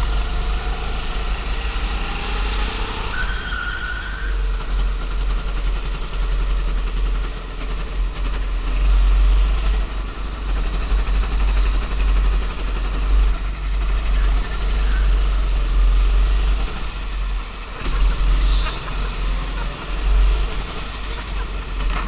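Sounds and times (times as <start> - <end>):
go-kart engine rumble: 0.0 - 22.0.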